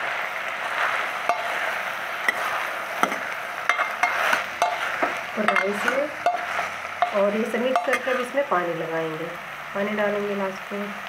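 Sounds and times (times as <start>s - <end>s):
frying sizzle: 0.0s - 11.0s
steel ladle scraping pot: 1.2s - 8.4s
ladle clinking against pot: 3.0s - 4.9s.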